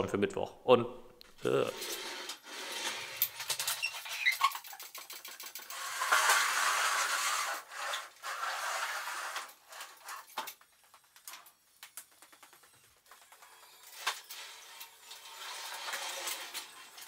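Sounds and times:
equipment scraping and rubbing: 0:01.4 - 0:10.4, 0:13.4 - 0:17.0
scattered knocks and clicks: 0:03.2 - 0:06.3, 0:10.3 - 0:14.2.

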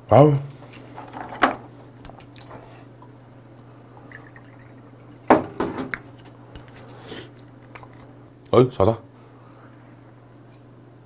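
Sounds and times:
steady low hum: 0:00.0 - 0:11.0
liquid glugging into a glass: 0:04.0 - 0:05.4.

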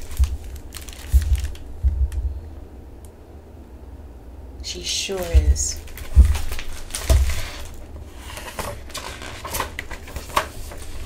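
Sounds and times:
book pages turning: 0:00.0 - 0:01.7, 0:05.2 - 0:11.0.

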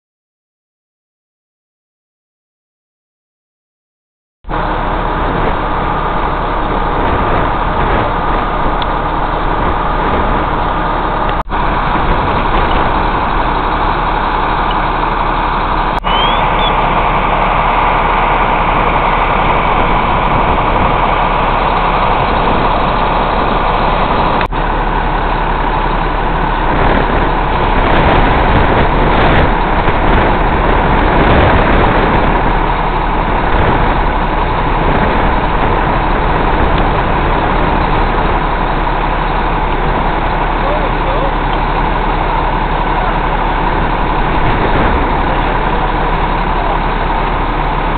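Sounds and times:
engine idling: 0:04.5 - 0:47.9.

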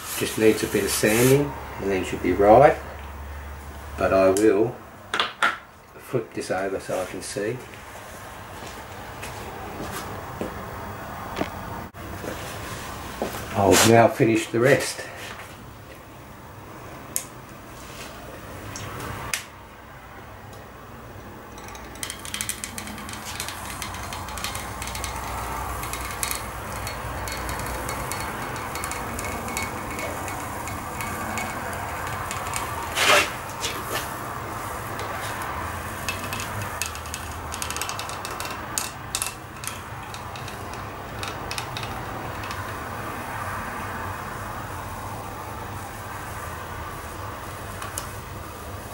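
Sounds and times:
foam pieces rubbing: 0:22.0 - 0:34.2
clicks and taps: 0:36.1 - 0:42.8.

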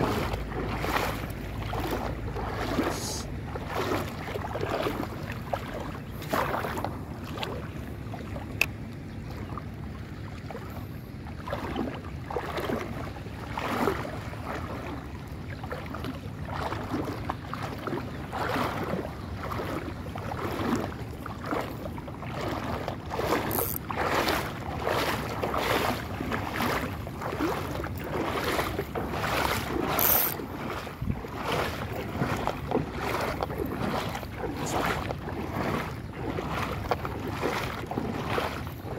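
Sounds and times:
seawater lapping and sloshing: 0:00.0 - 0:38.9
wind buffeting microphone: 0:22.4 - 0:38.9.

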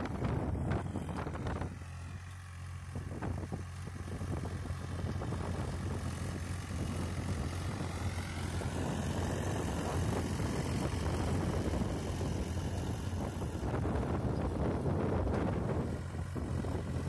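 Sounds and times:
tractor diesel engine droning: 0:00.0 - 0:17.0.

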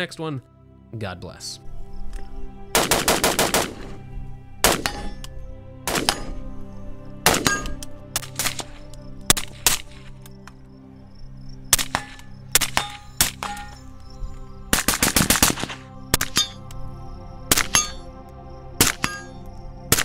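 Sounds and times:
background music: 0:00.0 - 0:20.0
suppressed rifle shots: 0:04.6 - 0:05.3, 0:05.9 - 0:06.4, 0:14.7 - 0:16.6.

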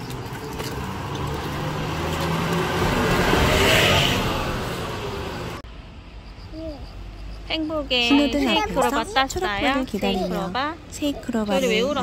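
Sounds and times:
car passing by: 0:00.1 - 0:05.6.

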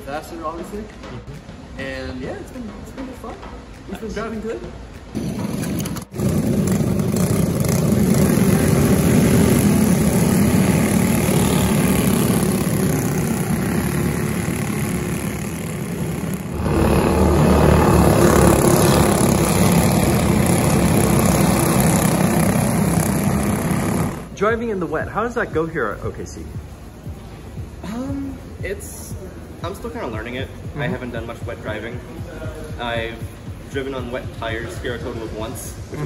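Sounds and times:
kart engines running: 0:05.2 - 0:24.3.

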